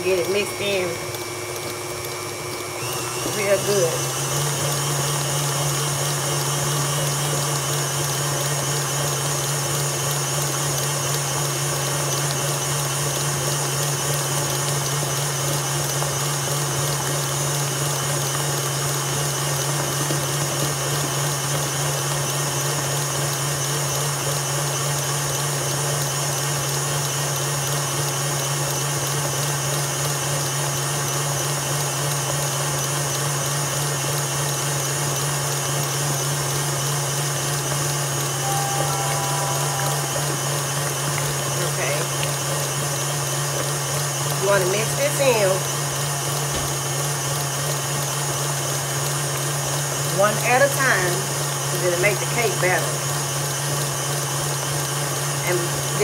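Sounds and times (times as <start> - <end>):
electric stand mixer running: 0.0 - 56.0.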